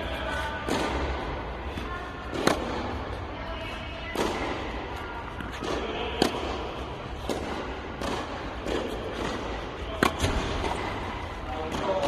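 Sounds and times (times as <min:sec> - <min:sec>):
racket hitting tennis ball: 0:00.0 - 0:12.0.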